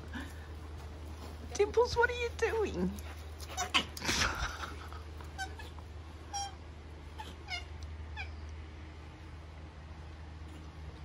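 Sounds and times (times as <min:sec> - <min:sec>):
steady low hum: 0:00.0 - 0:11.0
koala squeaky mewing cries: 0:05.4 - 0:06.6, 0:07.2 - 0:08.4.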